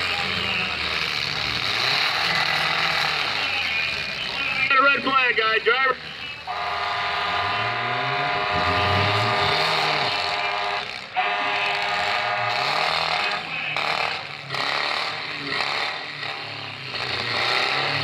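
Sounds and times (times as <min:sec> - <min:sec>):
car engines revving: 0:00.0 - 0:18.0
horn blasts: 0:06.4 - 0:13.9.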